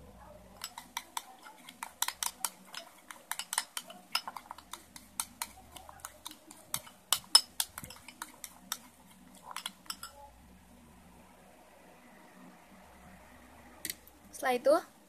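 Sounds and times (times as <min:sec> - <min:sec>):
metal spoon clinking glass bowl: 0:00.6 - 0:10.2.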